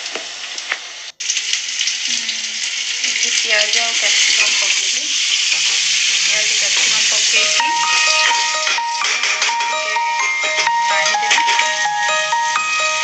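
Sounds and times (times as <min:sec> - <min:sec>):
vegetables sizzling in hot oil: 0:00.0 - 0:08.5.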